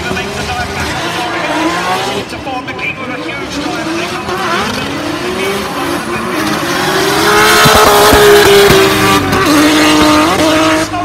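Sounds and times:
car engines revving hard: 0:00.0 - 0:11.0
sharp exhaust pops: 0:07.5 - 0:10.6.

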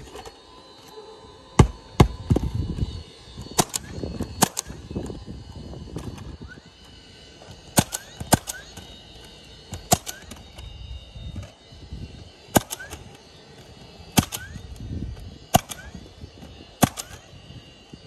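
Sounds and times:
nail gun firing into shingles: 0:03.6 - 0:04.7, 0:07.8 - 0:10.4, 0:12.5 - 0:14.6, 0:15.5 - 0:16.0, 0:16.8 - 0:17.2.

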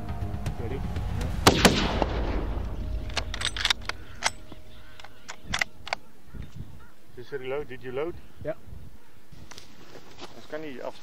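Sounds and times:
rifle shot: 0:01.4 - 0:04.5.

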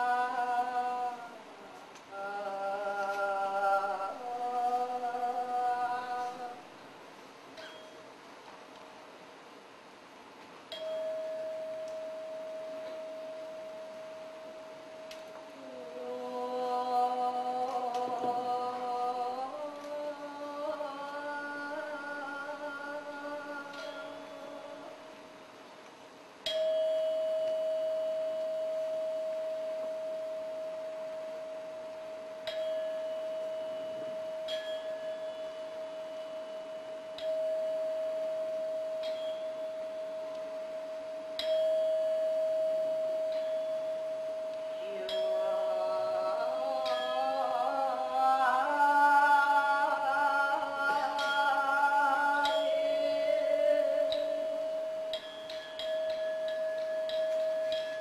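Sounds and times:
person singing chant-like line: 0:00.0 - 0:06.6, 0:15.1 - 0:25.2, 0:42.6 - 0:57.9
struck metal bell tone: 0:07.6 - 0:08.2, 0:10.7 - 0:15.6, 0:22.6 - 0:24.7, 0:26.4 - 0:58.0.

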